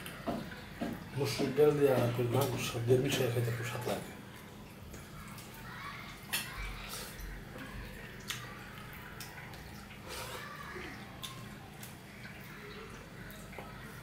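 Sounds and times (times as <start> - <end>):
sharp wet clicks: 4.3 - 10.0, 10.7 - 14.0.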